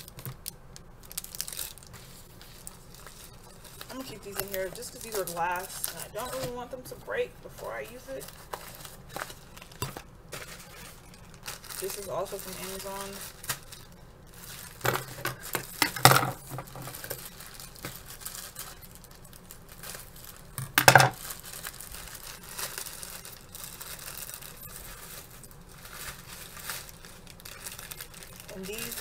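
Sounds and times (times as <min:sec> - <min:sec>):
plastic packaging crinkling and tearing: 0:00.0 - 0:29.0.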